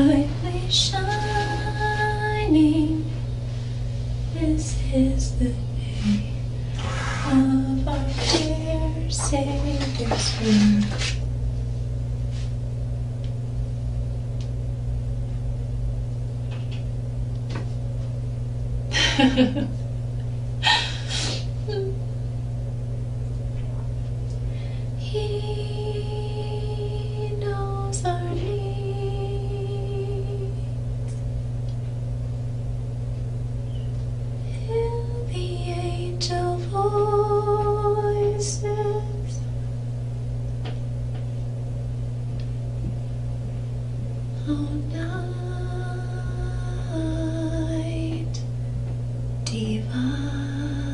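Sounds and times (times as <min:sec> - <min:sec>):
woman singing slow tune: 0:00.0 - 0:03.4, 0:04.2 - 0:06.6, 0:07.2 - 0:11.1, 0:21.7 - 0:22.1, 0:24.9 - 0:30.9, 0:34.4 - 0:39.5, 0:44.3 - 0:48.5, 0:49.4 - 0:50.9
steady low hum: 0:00.0 - 0:50.9.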